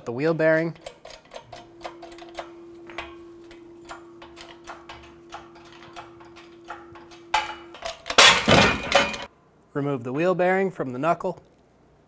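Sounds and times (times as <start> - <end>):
faint steady hum: 0.0 - 10.6
hydraulic jack clicking: 0.8 - 9.3.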